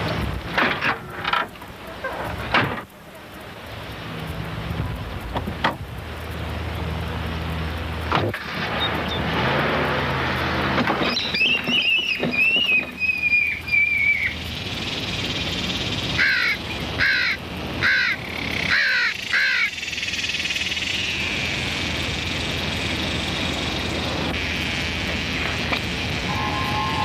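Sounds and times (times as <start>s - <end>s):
crows cawing: 16.2s - 19.8s
wavering high tone: 26.2s - 27.0s.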